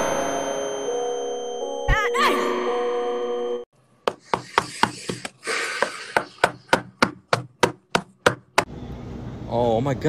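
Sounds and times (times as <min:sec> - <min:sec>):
rapid knocking on metal door: 0:06.2 - 0:08.7.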